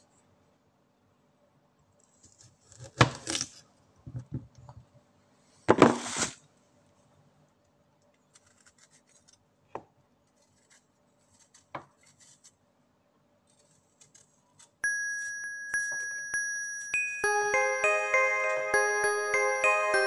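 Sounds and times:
knife scraping ginger skin: 2.0s - 3.6s, 8.2s - 9.4s, 10.3s - 12.6s, 13.5s - 14.8s
music with bell-like note: 14.8s - 20.0s.

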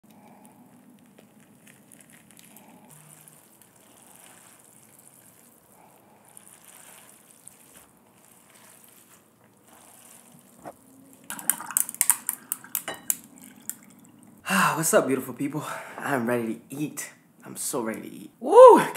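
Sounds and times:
wet squelching of noodles: 0.0s - 14.4s
ice crackling and clinking: 0.1s - 14.2s
water pouring into glass: 11.1s - 14.4s.

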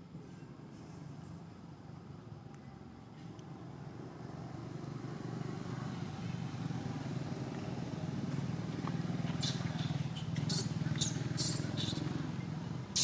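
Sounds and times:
small engine running: 5.3s - 13.0s.

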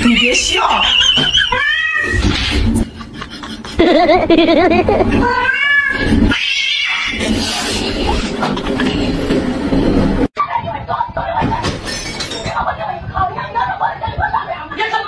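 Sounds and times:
cat yowling: 0.0s - 2.3s, 5.2s - 7.2s.

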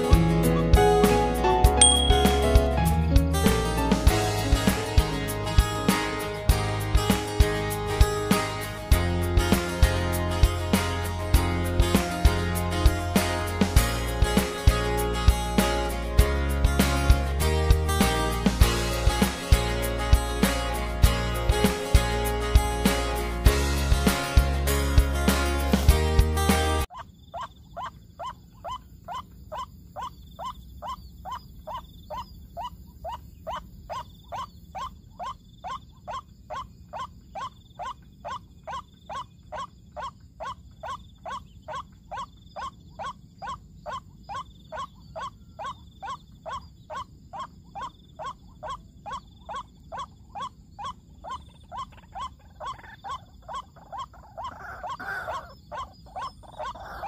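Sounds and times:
waterhen calls: 26.9s - 57.0s.

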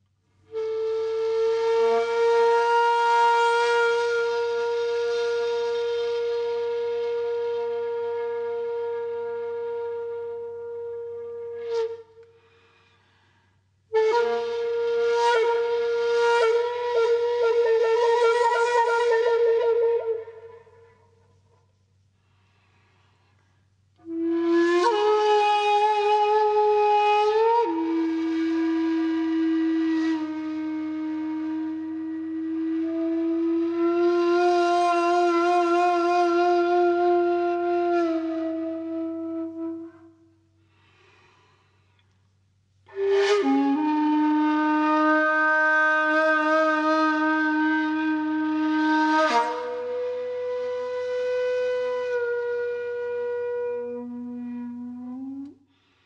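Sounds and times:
flute-like wind instrument note: 0.5s - 12.5s, 24.0s - 41.1s, 42.9s - 55.6s.

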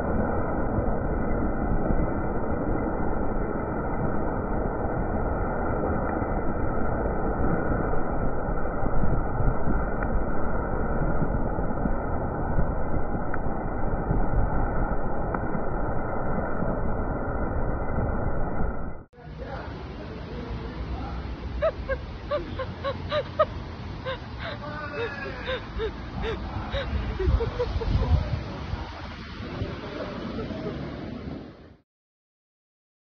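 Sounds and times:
wind over microphone: 0.0s - 19.1s, 21.6s - 31.8s
tyre noise on wet road: 19.4s - 31.8s.

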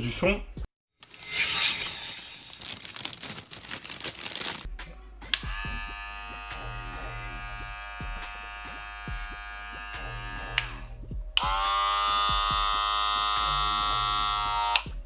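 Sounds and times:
hair clipper buzzing: 5.3s - 14.9s
louder clipper buzzing: 5.3s - 14.9s.

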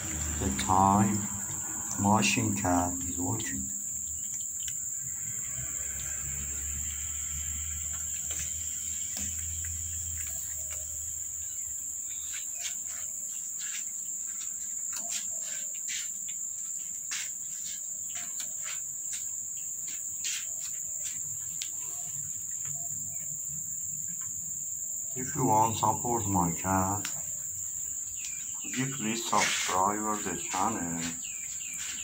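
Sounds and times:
cats crunching bones: 0.0s - 6.5s
insects chirring: 0.0s - 32.0s.

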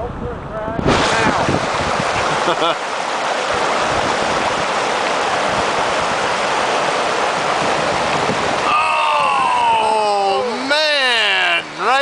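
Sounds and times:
whitewater rushing over rocks: 0.8s - 12.0s
person crying out: 8.6s - 10.5s.

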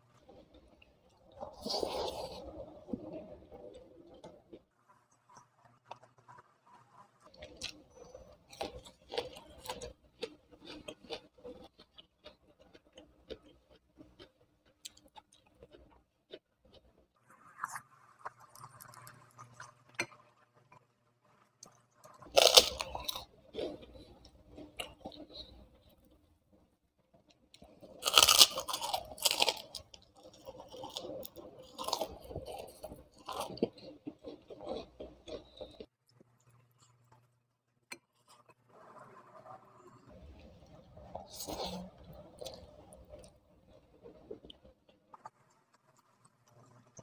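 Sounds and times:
cracker crunch: 3.6s - 20.8s, 21.5s - 26.2s, 27.6s - 39.0s.

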